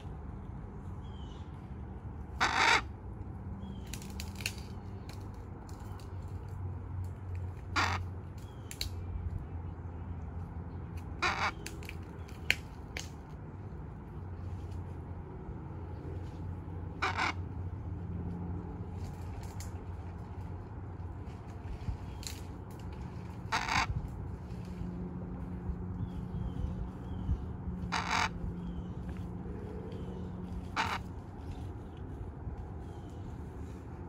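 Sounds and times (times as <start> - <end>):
macaw squawking: 2.4 - 2.9, 7.6 - 8.6, 11.2 - 12.0, 16.9 - 17.5, 23.4 - 24.0, 26.0 - 29.2, 30.0 - 31.2.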